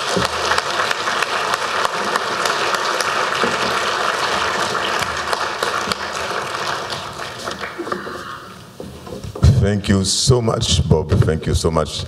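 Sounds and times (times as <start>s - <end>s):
audience applauding: 0.0s - 8.5s.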